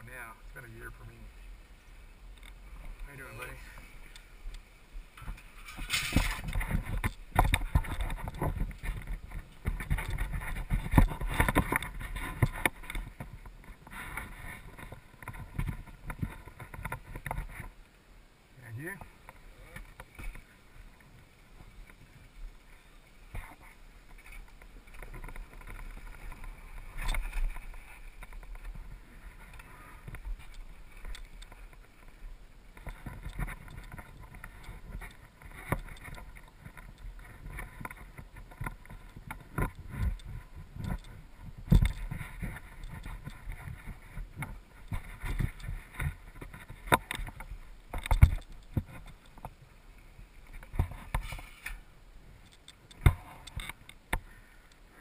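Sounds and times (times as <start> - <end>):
bike tyres rumbling: 1.8 - 17.8, 18.7 - 55.0
bike rattling: 5.1 - 17.8, 18.7 - 49.6.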